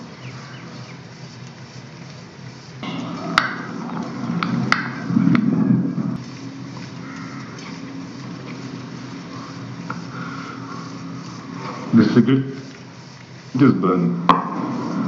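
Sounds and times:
low background rumble: 0.0 - 15.0.

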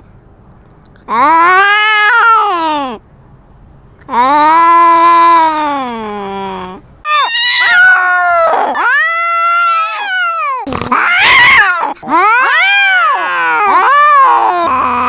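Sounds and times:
cats yowling: 1.1 - 3.0, 6.3 - 15.0
cat spitting: 10.6 - 12.0.

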